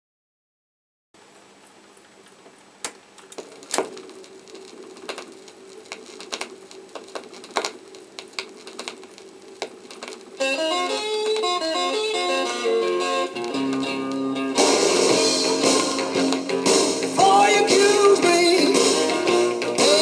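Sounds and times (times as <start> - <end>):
record stylus hum and hiss: 1.2 - 20.0
vinyl clicks and crackles: 1.3 - 20.0
guitar music: 10.4 - 20.0.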